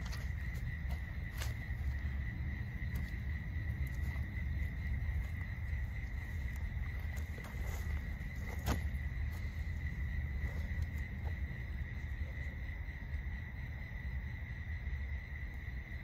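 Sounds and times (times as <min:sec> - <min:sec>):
crickets trilling: 0:00.0 - 0:16.0
low rumble: 0:00.0 - 0:16.0
footsteps on grass: 0:05.2 - 0:11.6.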